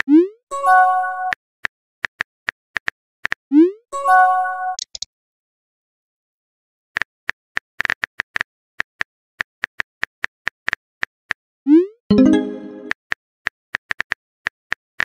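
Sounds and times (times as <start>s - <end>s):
short pitched alert: 12.1s - 12.9s.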